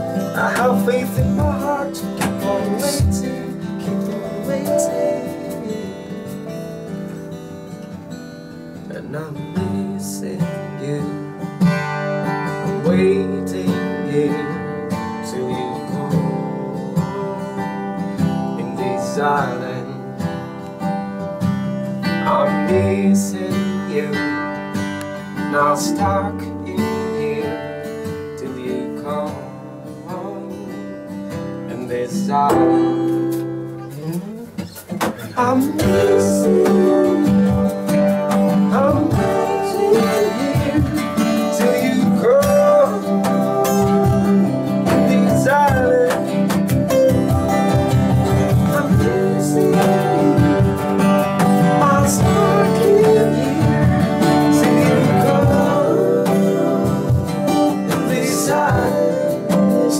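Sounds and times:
acoustic guitars playing: 0.0s - 59.9s.

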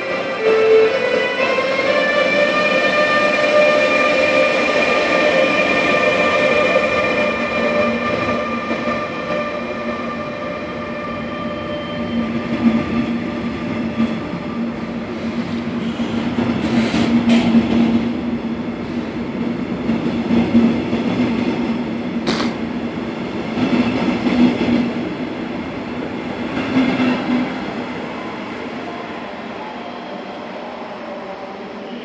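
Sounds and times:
train hum: 0.0s - 32.0s
train wheels running: 19.4s - 22.8s.

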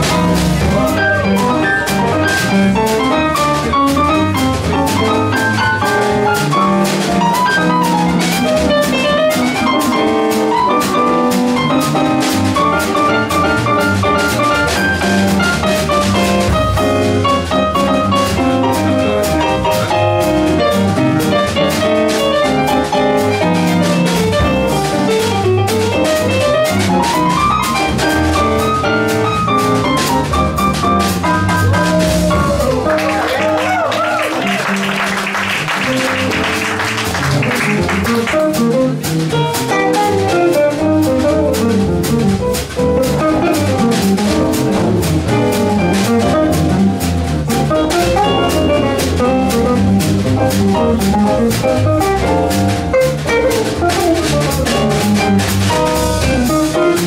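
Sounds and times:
steady jazz cymbal rhythm: 0.0s - 32.9s, 35.8s - 57.0s
swing jazz combo: 0.0s - 57.0s
walking bass: 0.0s - 57.0s
piano runs: 39.2s - 57.0s.

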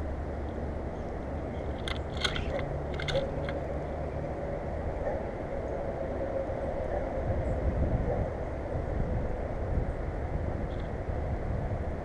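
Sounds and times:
steady low rumble: 0.0s - 12.0s
birds pecking at seed: 1.4s - 3.7s
sharp taps and crunches: 1.6s - 3.6s.

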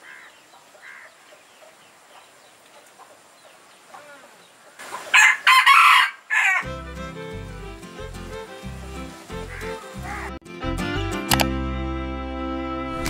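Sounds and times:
faint bird calls: 0.0s - 5.4s
rooster crowing: 5.1s - 6.8s
music: 6.6s - 13.0s.

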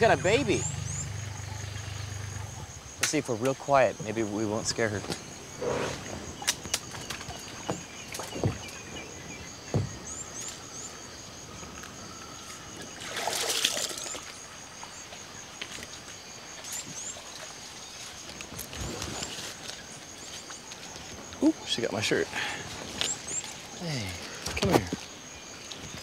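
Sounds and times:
high insect drone: 0.0s - 26.0s
water sloshing from wading: 4.7s - 10.7s, 12.4s - 21.4s.

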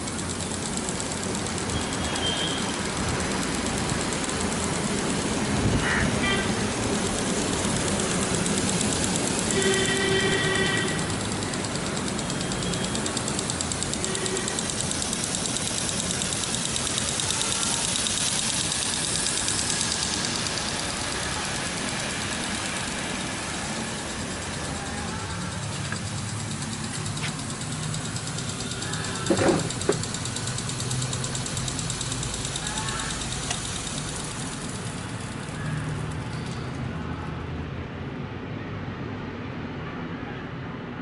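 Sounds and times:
water spray hissing: 0.0s - 36.0s
sprinkler ticking: 0.0s - 36.9s
horn sounding: 5.7s - 6.8s, 9.3s - 11.3s, 13.9s - 14.8s.

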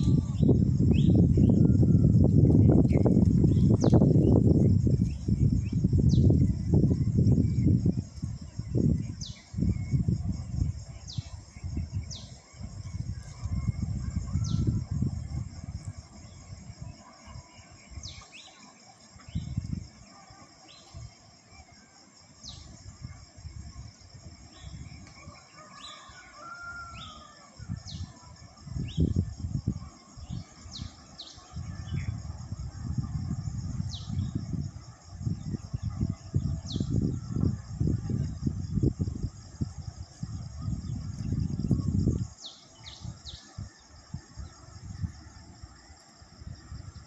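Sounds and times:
high insect drone: 0.0s - 47.0s
wind rumbling on microphone: 0.0s - 47.0s
rooster crowing: 25.2s - 27.6s.

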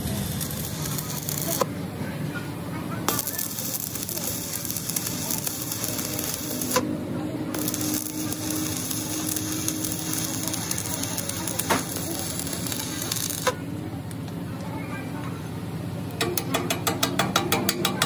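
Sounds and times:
arc welding crackle: 0.0s - 1.8s, 3.0s - 6.9s, 7.5s - 13.6s.

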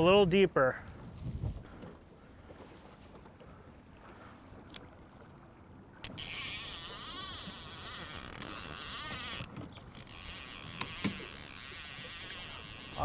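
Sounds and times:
fishing reel whirring: 6.0s - 13.0s.

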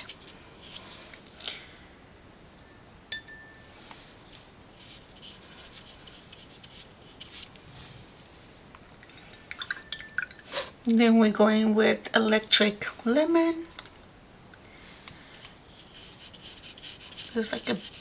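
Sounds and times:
sharp clink: 3.1s - 3.7s
brush painting on paper: 4.3s - 7.5s, 15.7s - 18.0s.

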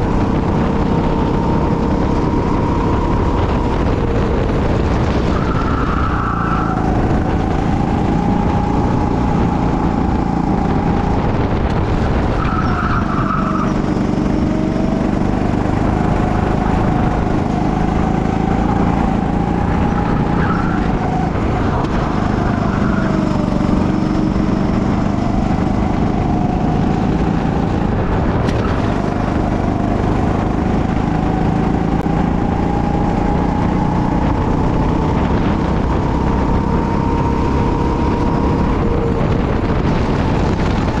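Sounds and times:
go-kart engine revving: 0.0s - 41.0s.

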